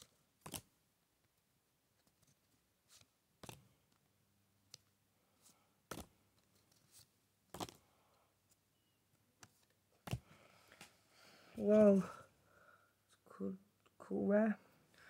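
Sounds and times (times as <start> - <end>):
trading cards snapping: 0.4 - 0.7, 3.4 - 3.6, 5.9 - 6.2, 7.5 - 7.8.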